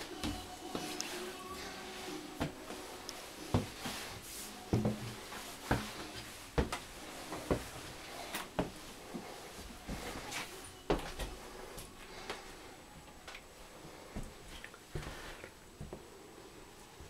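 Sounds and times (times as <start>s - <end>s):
footsteps on stairs and floor: 0.0s - 1.2s, 1.9s - 12.4s.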